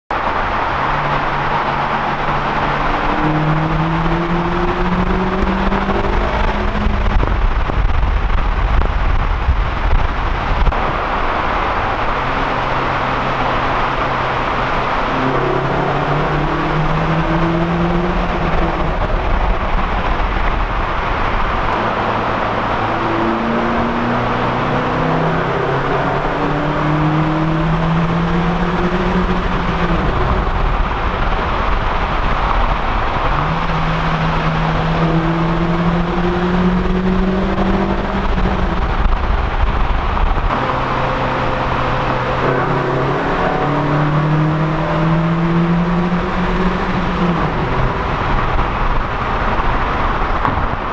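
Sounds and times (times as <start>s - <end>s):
road and tyre noise: 0.0s - 50.9s
car engine accelerating: 0.1s - 50.9s.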